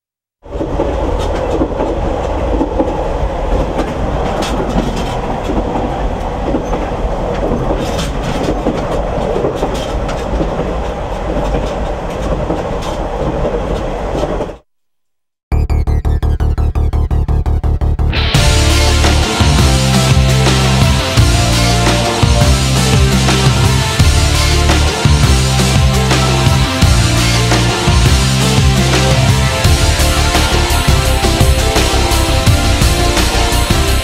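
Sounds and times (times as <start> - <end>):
train rumbling: 0.4 - 14.6, 17.7 - 34.0
train wheels clicking: 0.5 - 14.5
fast electronic pulse music: 15.5 - 34.0.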